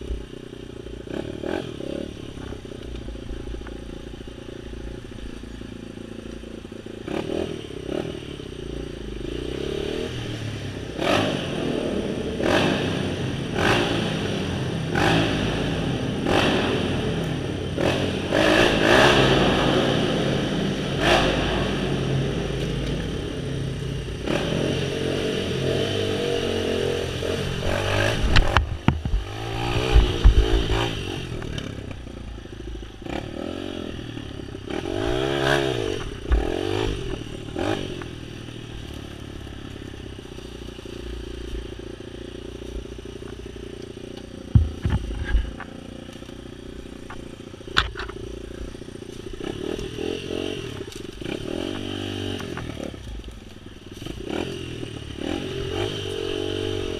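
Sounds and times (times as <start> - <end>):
off-road vehicle engine revving: 0.0 - 56.9
low thumps: 44.4 - 45.7.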